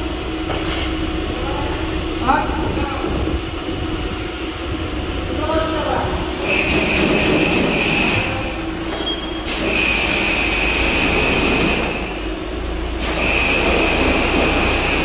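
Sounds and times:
low hum: 0:00.0 - 0:09.5
compressed air blow gun hissing: 0:13.0 - 0:15.0.

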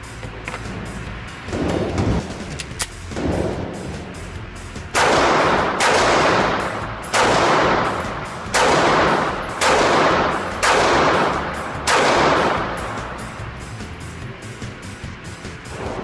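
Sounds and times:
pistol shots echoing indoors: 0:01.5 - 0:02.0, 0:02.9 - 0:04.2, 0:04.9 - 0:13.4.

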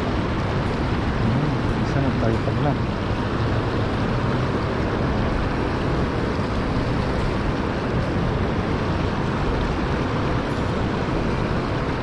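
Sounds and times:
river water rushing over rocks: 0:00.0 - 0:12.0.

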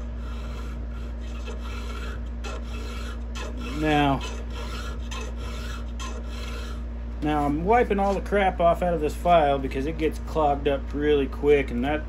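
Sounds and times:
hand file rasping on metal: 0:00.0 - 0:08.3
rising hum: 0:00.0 - 0:10.2.

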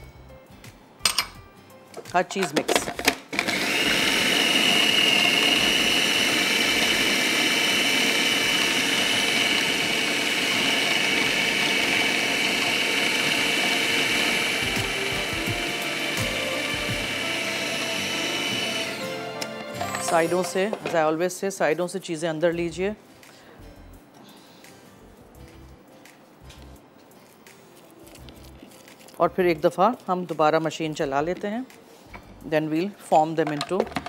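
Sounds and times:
food processor motor whining: 0:03.3 - 0:21.0.

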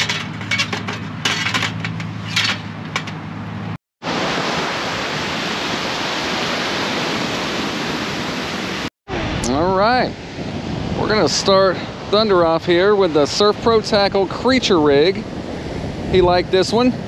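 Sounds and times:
wind: 0:00.0 - 0:17.0
surf on the beach: 0:04.0 - 0:17.0.

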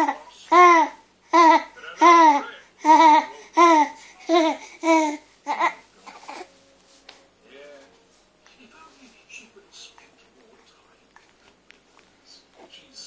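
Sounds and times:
baby laughing: 0:00.0 - 0:06.5.

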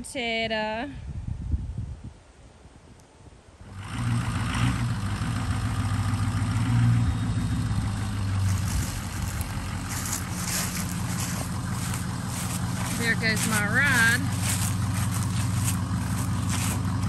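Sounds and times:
truck engine idling: 0:04.8 - 0:17.0.

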